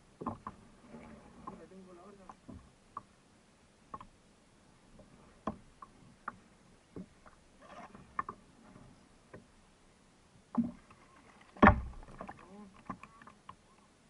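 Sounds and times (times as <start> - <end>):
soft rustle: 0.2 - 3.2, 4.5 - 14.0.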